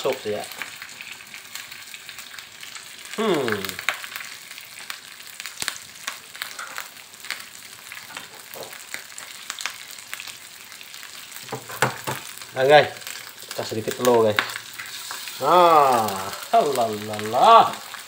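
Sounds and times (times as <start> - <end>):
food sizzling in frying pan: 0.0 - 18.0
short vocal sound: 3.2 - 3.8.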